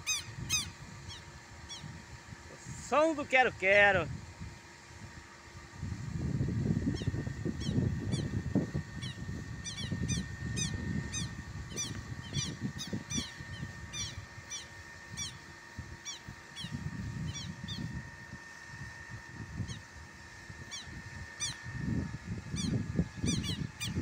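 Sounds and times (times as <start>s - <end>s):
lapwing calling: 0.0s - 2.0s, 6.9s - 8.4s, 9.0s - 17.9s, 20.6s - 21.7s, 22.5s - 24.0s.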